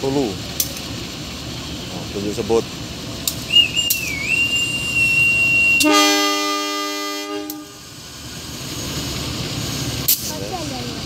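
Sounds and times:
high steady whistle blast: 3.4 - 7.8
locomotive air horn blast: 3.5 - 7.9.

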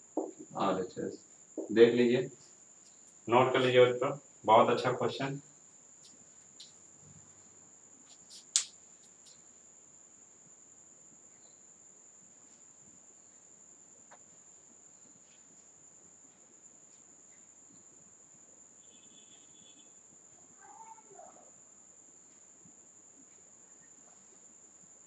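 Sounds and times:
faint high-pitched tone: 18.8 - 21.6.

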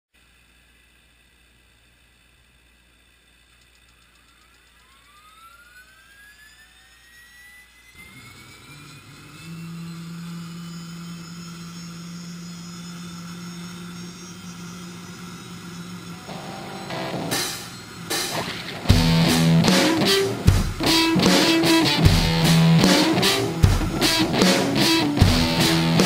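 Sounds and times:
helicopter turbine whine: 0.2 - 26.0
rotor low drone: 7.9 - 26.0
rushing noise: 15.8 - 26.0.

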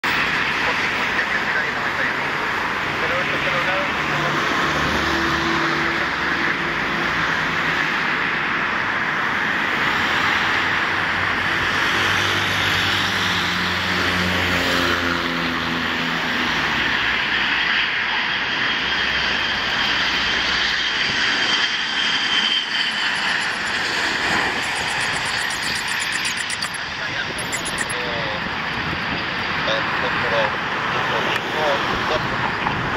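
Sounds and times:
jet airliner passing: 0.0 - 32.9
thin whine: 21.5 - 28.6.

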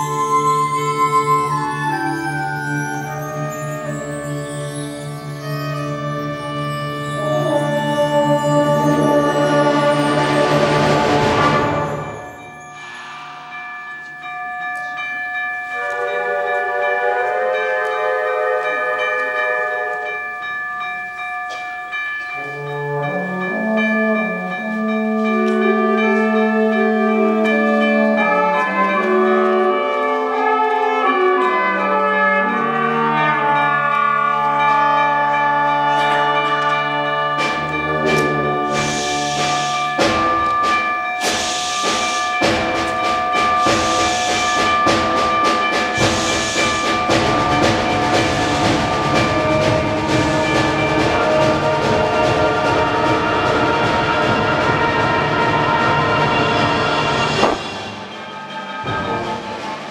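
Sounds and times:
wind band chords: 0.0 - 59.9
drum and cymbal hits: 9.8 - 15.2, 37.4 - 59.9
concert band playing: 37.2 - 59.9.

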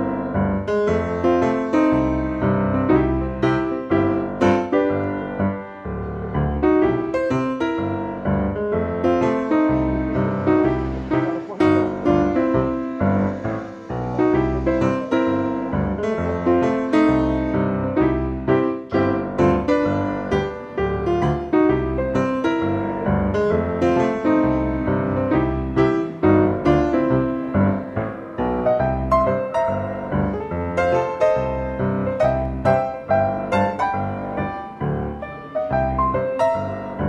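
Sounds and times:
bass line: 0.0 - 37.0.

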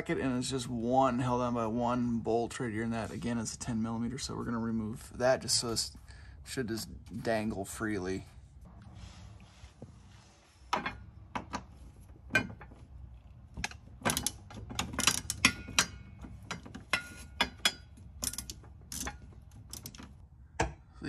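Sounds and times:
ratchet wrench clicking: 17.5 - 20.0.

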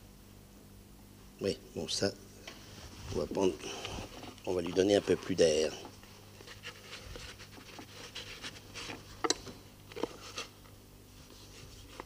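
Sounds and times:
cloth rustling: 2.6 - 9.2.

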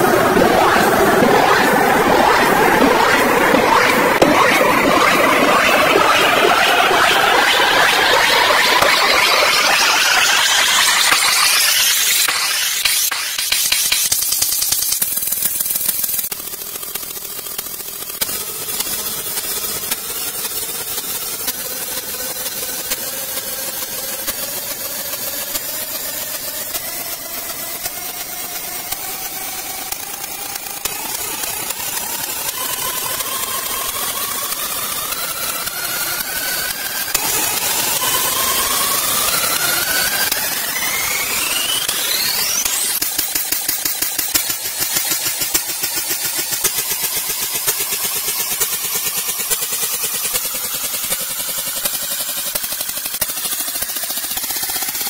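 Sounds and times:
hissing noise: 0.0 - 16.3
synth risers: 0.0 - 16.3, 26.6 - 47.9.

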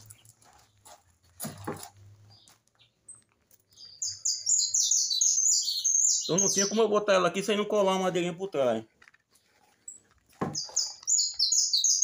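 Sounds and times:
small bird chirping: 2.2 - 7.2, 9.4 - 12.0
handling rustle: 8.6 - 11.4.

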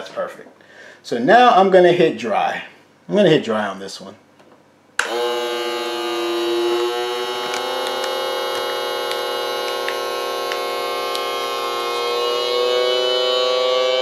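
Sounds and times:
vacuum sealer pump humming: 5.0 - 14.0.

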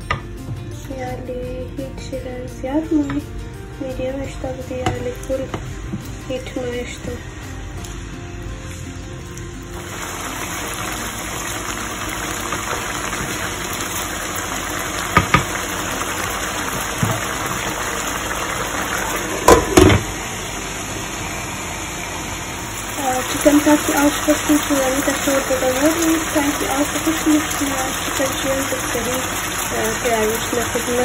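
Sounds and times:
food sizzling in a frying pan: 4.0 - 31.0
sharp knocks against pan: 15.2 - 15.5.

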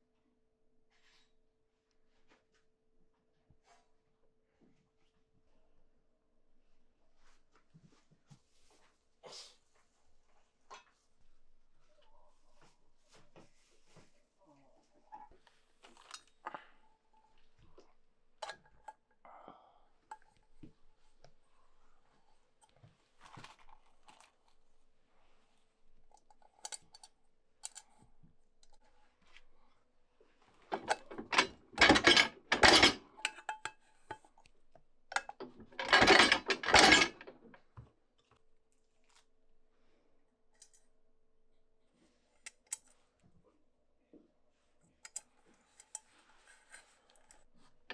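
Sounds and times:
metal parts clicking and clinking: 30.7 - 34.2, 35.1 - 37.5.

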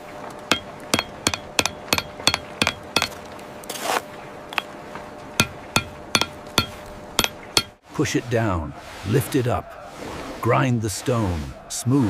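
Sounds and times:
mallet tapping chisel on stone: 0.5 - 3.2, 5.4 - 7.8.

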